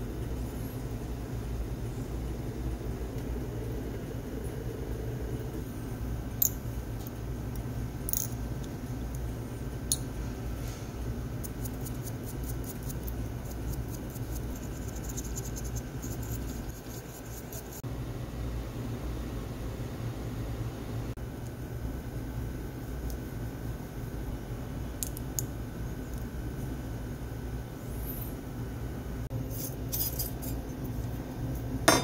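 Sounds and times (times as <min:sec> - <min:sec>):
low hum: 0:00.0 - 0:24.9
small brush scrubbing: 0:11.4 - 0:17.8.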